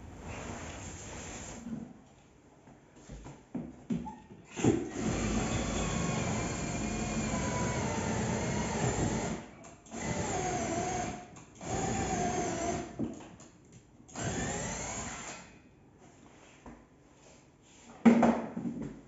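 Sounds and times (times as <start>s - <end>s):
electric drill running: 4.9s - 9.4s, 14.2s - 15.4s.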